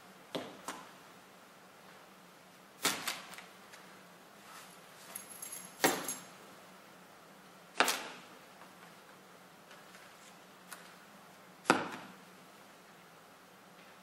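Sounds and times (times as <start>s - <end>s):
keys jingling: 5.0s - 6.3s.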